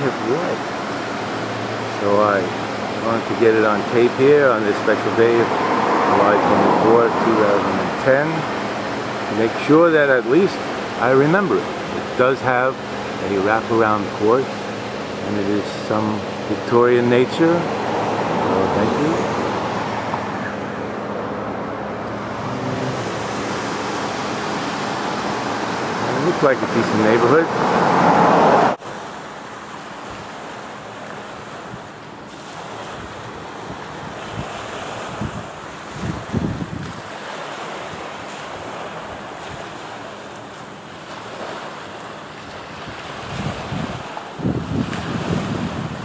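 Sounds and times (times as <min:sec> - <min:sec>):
car engine hum: 0:00.0 - 0:32.3
waves washing onto pebble beach: 0:28.9 - 0:46.0
wind buffeting microphone: 0:32.8 - 0:37.2, 0:42.6 - 0:46.0.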